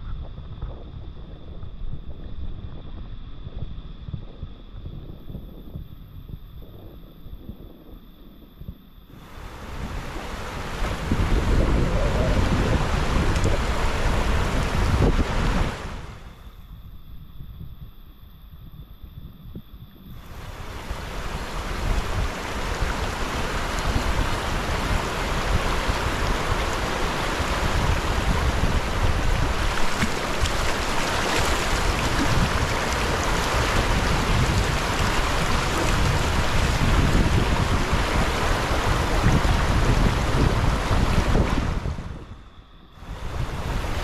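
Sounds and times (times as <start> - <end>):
wind buffeting microphone: 0.0 - 44.0
river rapids rushing over rocks: 29.5 - 34.0.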